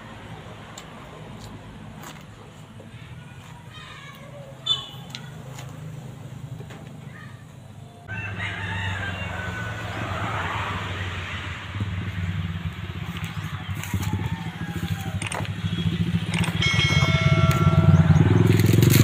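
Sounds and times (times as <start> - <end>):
rooster crowing: 8.1 - 11.1, 13.4 - 15.5
steady low rumble: 11.0 - 19.0.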